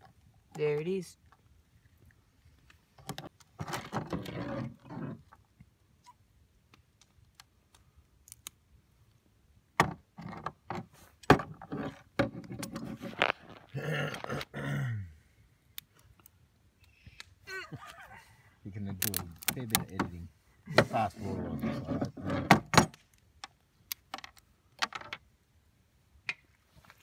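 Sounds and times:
crayfish shell cracking: 6.7s - 8.6s, 18.9s - 20.0s.

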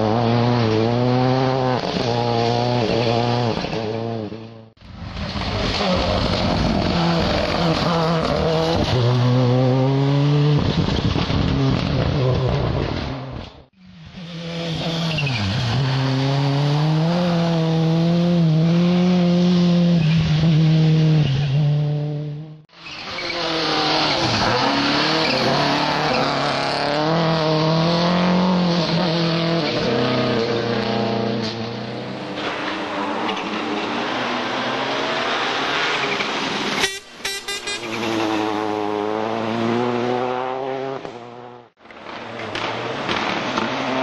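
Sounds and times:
rally car engines accelerating: 0.0s - 36.8s, 37.9s - 44.0s.

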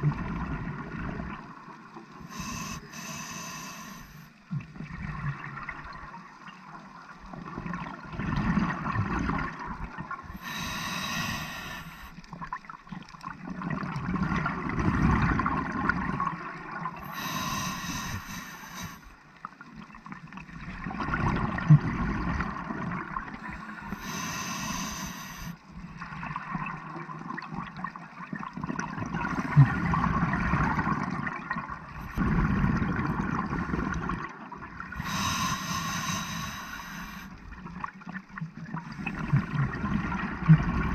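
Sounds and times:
regulator hissing inhale: 2.3s - 4.3s, 10.4s - 12.2s, 17.0s - 19.1s, 23.5s - 25.6s, 35.0s - 37.4s
gurgling exhaled bubbles: 7.3s - 10.4s, 11.2s - 17.2s, 19.8s - 35.5s, 36.3s - 40.9s.

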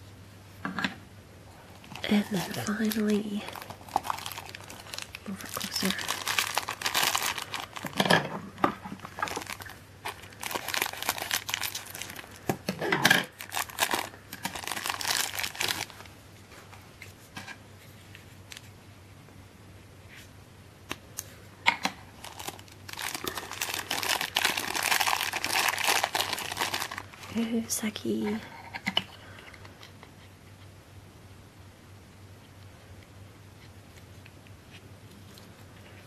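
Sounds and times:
plastic bags crinkling: 1.8s - 16.1s, 22.1s - 27.5s.

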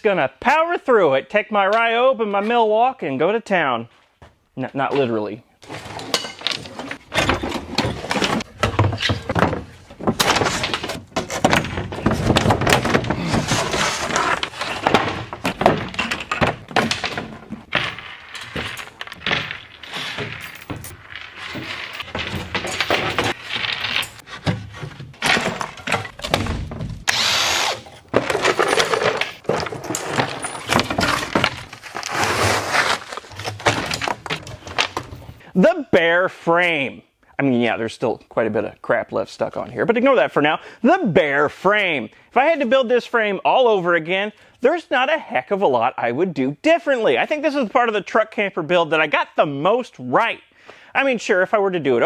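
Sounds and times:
plywood panels cracking: 5.6s - 27.3s, 28.0s - 35.4s
panels dropped with thuds: 5.7s - 27.1s, 28.0s - 35.4s
cordless drills running: 27.1s - 27.9s.

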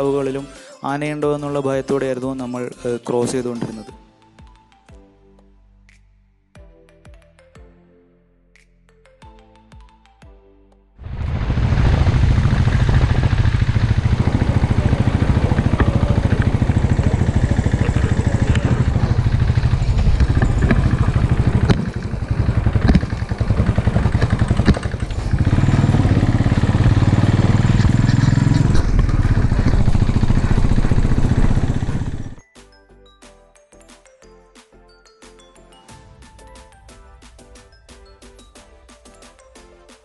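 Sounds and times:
motorcycle engine running: 11.0s - 32.4s.

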